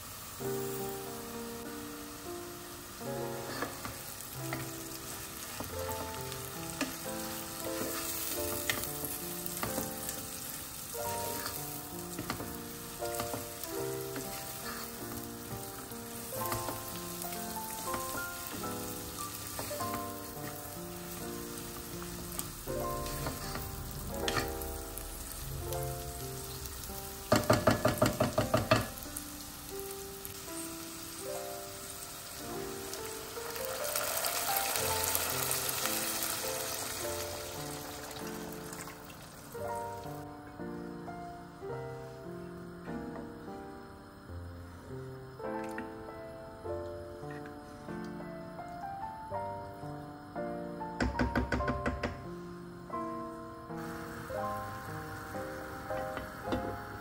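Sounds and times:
food sizzling in oil: 0.0 - 40.3, 53.7 - 57.0
background music: 0.0 - 57.0
wooden spoon stirring pot: 23.0 - 24.5, 27.3 - 28.9.

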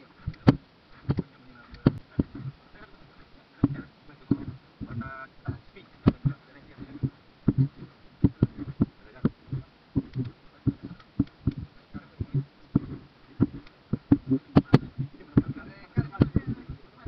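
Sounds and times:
dull knocks and thumps: 0.2 - 2.6, 3.6 - 17.0.

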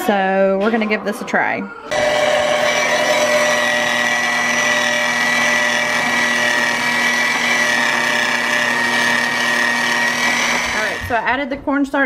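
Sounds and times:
electric hand mixer whisking: 1.9 - 11.4.

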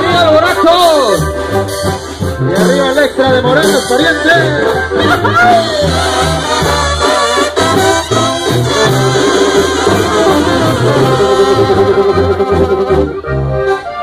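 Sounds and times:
brass band playing: 0.0 - 14.0
sousaphone bass line: 0.0 - 14.0.

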